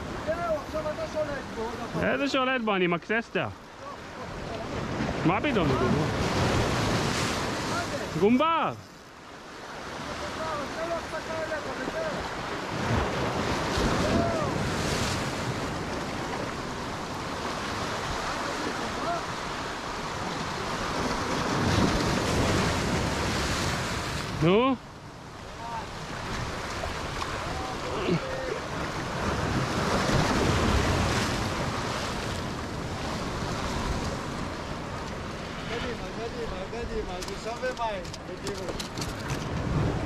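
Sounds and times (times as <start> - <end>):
waves breaking over rocks: 0.0 - 40.0
wind rumbling on microphone: 12.2 - 40.0.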